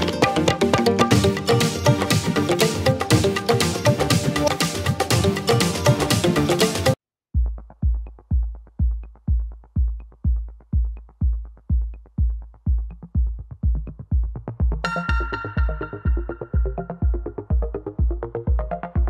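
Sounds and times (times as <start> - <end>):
busy electronic music track: 0.0 - 7.0, 10.5 - 19.0
drum-machine bass beat: 0.0 - 19.0
synth melody: 14.8 - 18.0.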